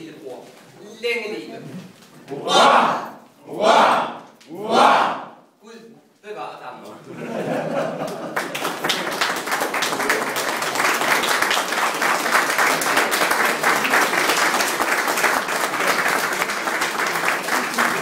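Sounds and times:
crowd applauding: 7.9s - 18.0s.

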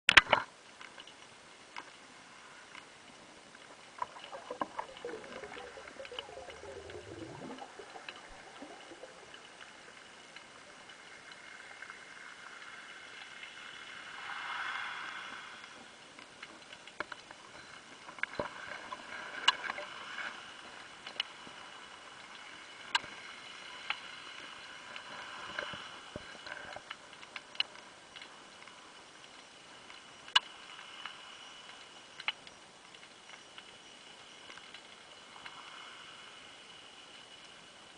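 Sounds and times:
faint underwater hiss: 0.6s - 37.9s
swell of water noise: 2.1s - 29.0s.

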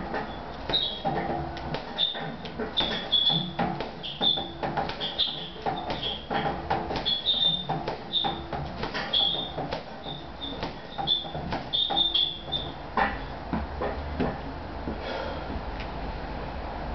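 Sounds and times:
gloves punching heavy bag: 0.0s - 13.3s
chain hanger squeaking: 0.2s - 1.2s, 2.0s - 13.3s.

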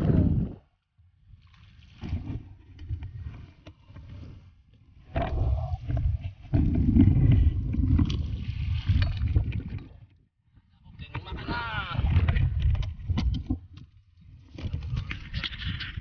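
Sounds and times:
wind rumbling on microphone: 0.0s - 0.8s, 5.0s - 16.0s.

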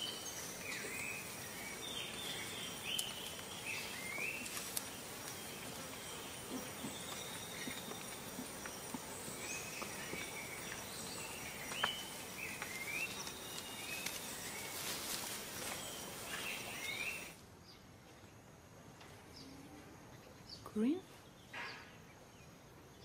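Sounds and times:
birds chirping: 0.0s - 18.4s.

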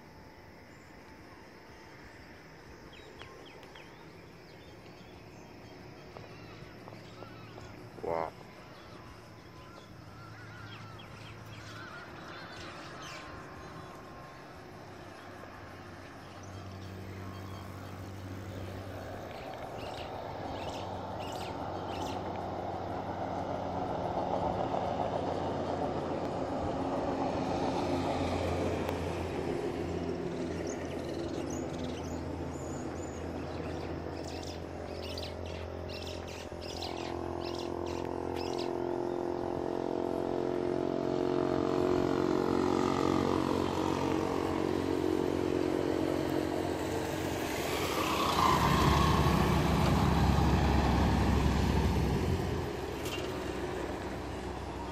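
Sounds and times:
passing vehicles humming: 0.0s - 54.9s
motorcycles approaching: 1.8s - 54.9s
birds chirping: 2.6s - 22.6s, 30.3s - 40.8s.

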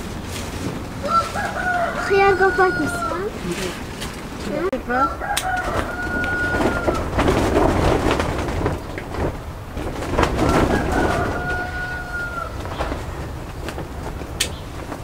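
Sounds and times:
plant leaves rustling: 0.0s - 15.0s
rooster crowing: 1.0s - 3.5s, 4.9s - 7.4s, 10.4s - 13.0s.

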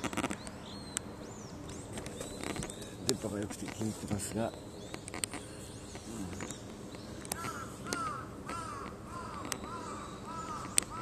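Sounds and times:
crow cawing: 7.3s - 11.0s.

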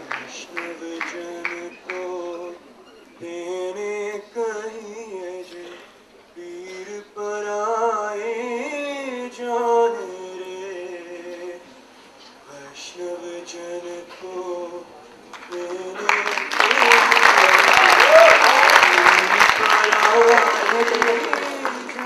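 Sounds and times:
applause: 0.0s - 2.0s, 15.3s - 22.0s.

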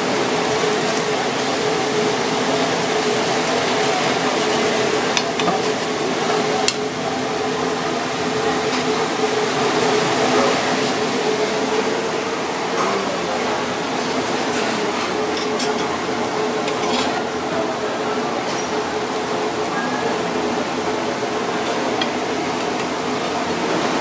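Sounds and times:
broth simmering and bubbling: 0.0s - 24.0s
kitchen hum: 0.0s - 24.0s.

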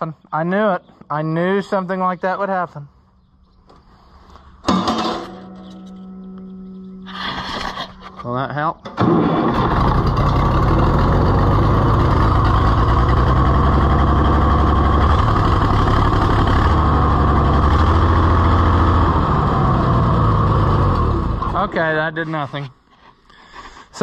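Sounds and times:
tractor engine misfiring: 4.6s - 6.1s, 7.0s - 22.1s.

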